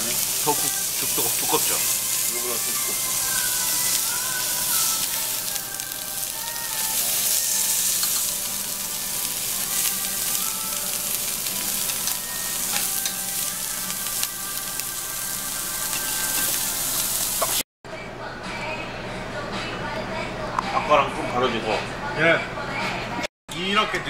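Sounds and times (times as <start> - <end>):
meat sizzling on a grill plate: 0.0 - 17.6.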